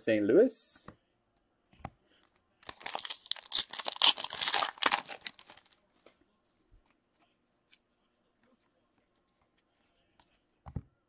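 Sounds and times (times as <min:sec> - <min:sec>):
foil wrapper tearing and crinkling: 0:02.6 - 0:05.8.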